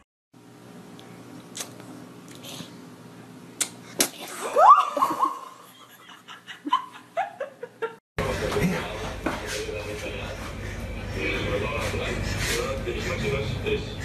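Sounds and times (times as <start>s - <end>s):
cries: 4.4s - 5.1s
steady low hum: 5.4s - 14.0s.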